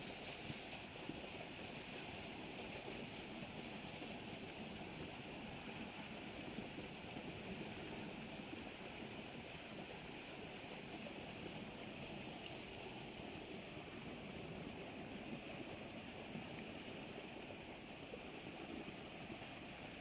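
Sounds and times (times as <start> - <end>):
fast-flowing water rushing: 0.0 - 20.0.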